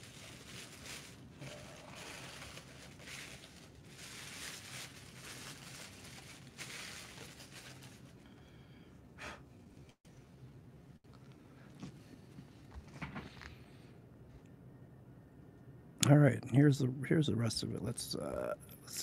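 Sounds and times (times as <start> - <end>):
paper and plastic packing rustling: 0.0 - 8.3.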